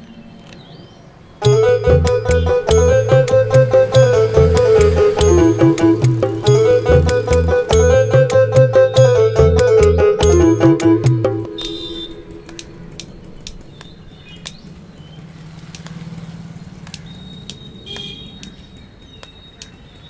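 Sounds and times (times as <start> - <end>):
bird chirps: 11.5 - 15.3, 17.0 - 20.0
sharp clicks: 12.4 - 14.7.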